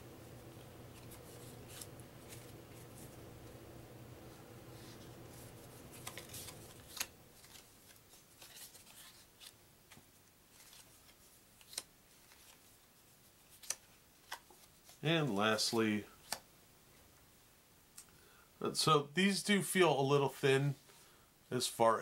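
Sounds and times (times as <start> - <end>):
paper cards rustling: 0.9 - 3.6, 4.3 - 15.0.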